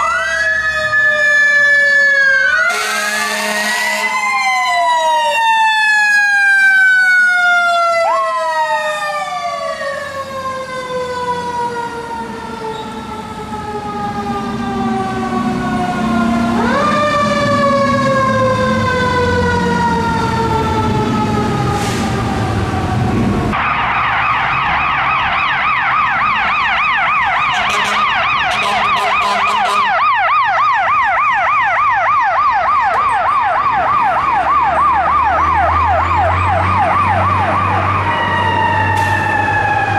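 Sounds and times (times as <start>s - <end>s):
fast electronic siren yelp: 0.0s - 10.1s, 23.5s - 39.9s
fire truck siren wail: 0.0s - 39.9s
truck engine: 9.6s - 39.9s.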